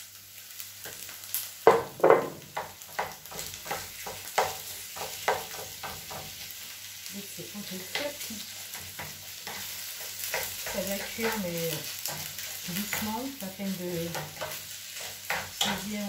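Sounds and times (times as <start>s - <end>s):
meat sizzling in a frying pan: 0.0s - 16.0s
spatula scraping a pan: 2.6s - 6.7s, 7.6s - 16.0s.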